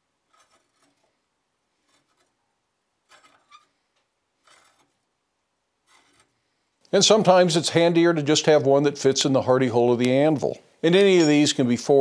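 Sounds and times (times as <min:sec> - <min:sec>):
steel scraping on steel: 0:00.3 - 0:01.1, 0:01.8 - 0:02.4, 0:03.0 - 0:03.8, 0:04.4 - 0:05.0, 0:05.8 - 0:06.3.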